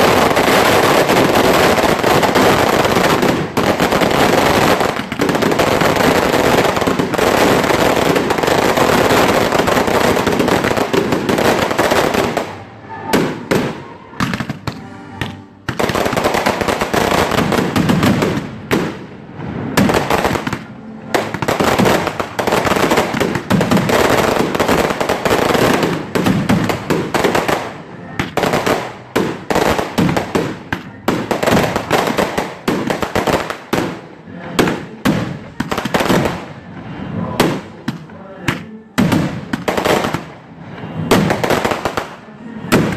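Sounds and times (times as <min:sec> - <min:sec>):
fireworks bangs and crackling: 0:00.0 - 0:42.9.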